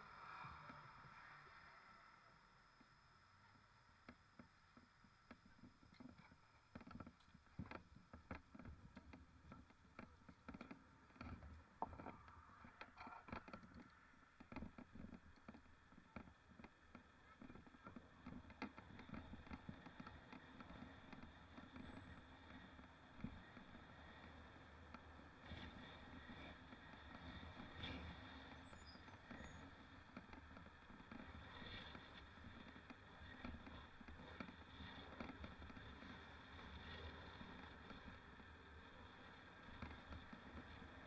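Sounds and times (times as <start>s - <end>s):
low steady hiss: 0.0s - 6.7s.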